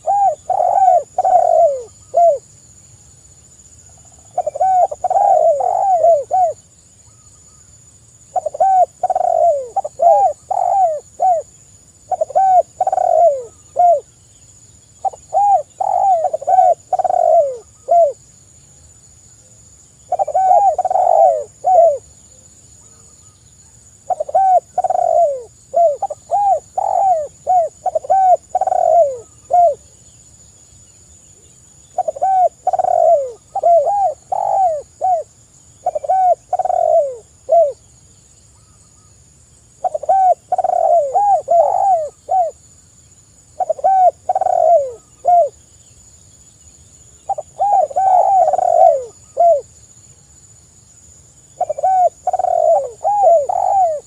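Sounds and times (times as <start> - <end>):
dove cooing: 0.0 - 2.4, 4.0 - 6.6, 8.3 - 11.5, 12.1 - 14.1, 15.0 - 18.2, 20.1 - 22.1, 24.0 - 30.0, 31.9 - 37.9, 39.8 - 42.6, 43.6 - 45.6, 47.3 - 49.7, 51.6 - 54.0.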